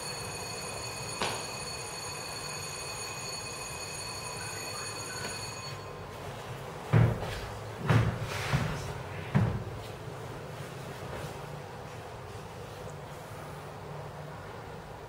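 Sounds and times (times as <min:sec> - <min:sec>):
faint high whine: 0:00.0 - 0:06.2.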